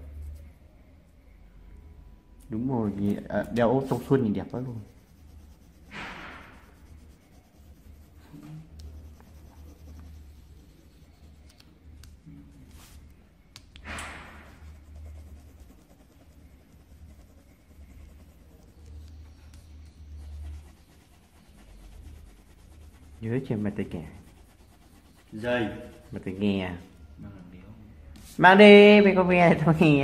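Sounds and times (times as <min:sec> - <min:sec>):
pencil scratching on paper: 0:03.5 - 0:11.7, 0:14.0 - 0:27.2.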